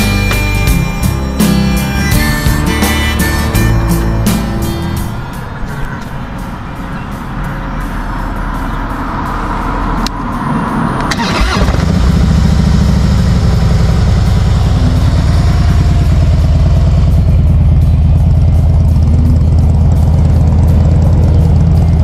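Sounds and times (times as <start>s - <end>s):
motorcycle engine starting and idling: 10.9s - 22.0s.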